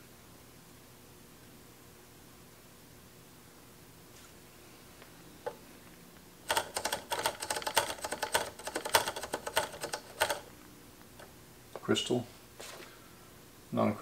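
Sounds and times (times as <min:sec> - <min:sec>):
rapid clicks and rattles of small parts: 0:06.5 - 0:10.5.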